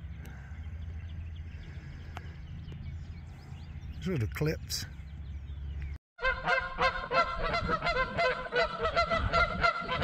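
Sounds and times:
geese honking: 6.2 - 10.0.

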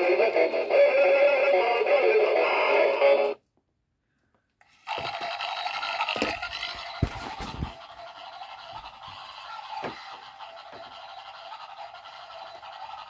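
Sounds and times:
tinny toy song: 0.0 - 3.4.

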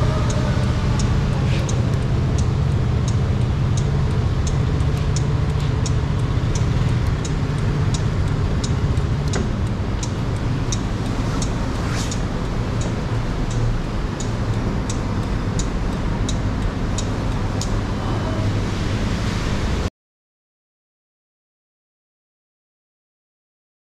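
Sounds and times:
sharp ticking: 0.0 - 18.0.

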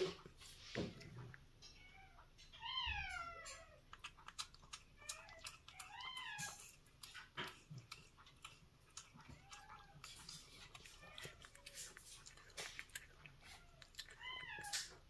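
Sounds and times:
cat chewing and lapping: 0.0 - 15.0
cat meowing: 1.7 - 3.8, 5.0 - 6.6, 13.4 - 15.0.

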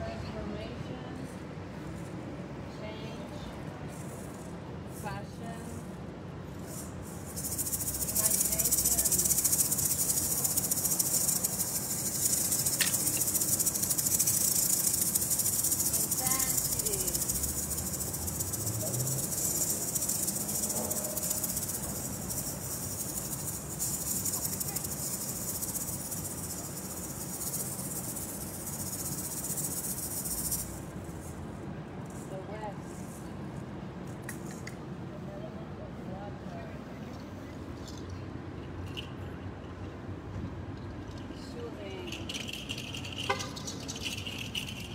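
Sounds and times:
hand rattle shaken rapidly: 3.5 - 34.8, 37.7 - 44.9.

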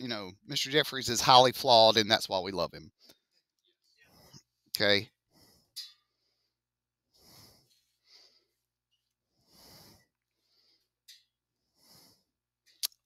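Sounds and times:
man breathing into microphone: 7.1 - 8.6, 9.4 - 10.9.

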